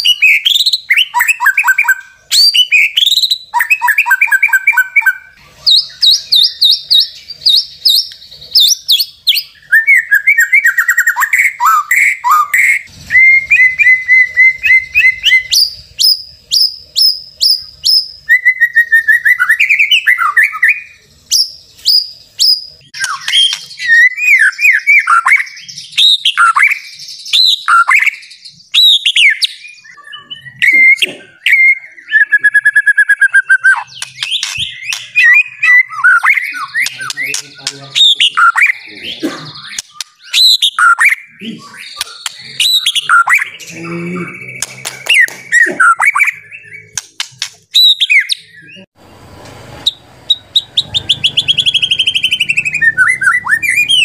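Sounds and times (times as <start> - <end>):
songbird singing: 0.0 - 54.0.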